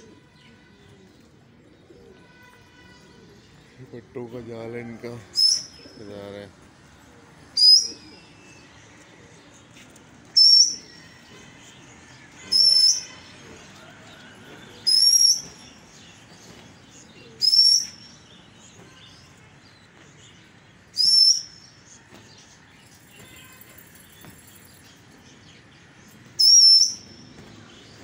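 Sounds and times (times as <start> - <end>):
small birds chirping: 5.3 - 28.0
loud sharp whistles: 21.0 - 21.6, 26.4 - 27.1.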